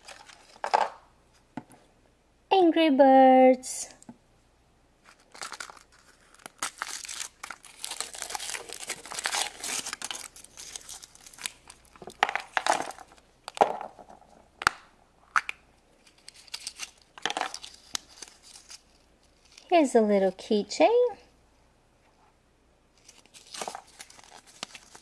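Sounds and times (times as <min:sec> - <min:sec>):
foil wrapper crinkling: 0:05.1 - 0:13.2, 0:16.0 - 0:19.7, 0:23.0 - 0:25.0
plastic capsule snapping open: 0:14.6 - 0:15.6.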